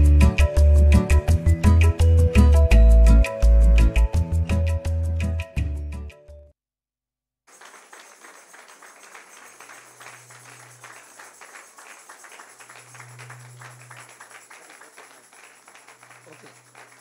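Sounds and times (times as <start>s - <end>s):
congregation clapping: 7.5s - 17.0s.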